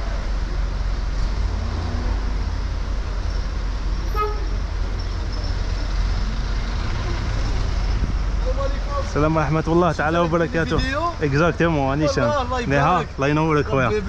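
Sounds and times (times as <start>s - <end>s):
city street traffic rumble: 0.0s - 14.0s
short horn toot: 4.1s - 4.6s.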